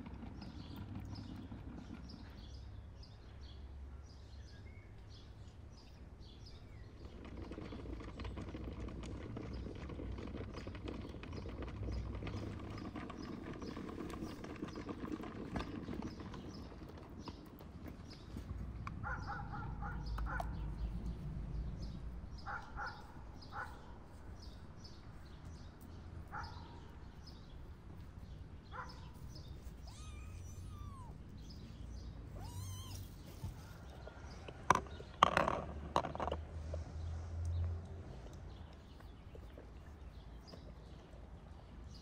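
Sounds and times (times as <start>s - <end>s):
short pitched animal calls: 29.8s - 31.4s, 32.3s - 33.6s.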